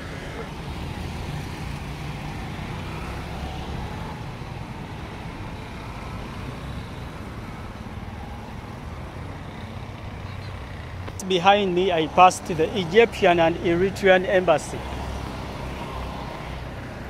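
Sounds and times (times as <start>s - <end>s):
motorcycles and cars passing: 0.0s - 17.0s.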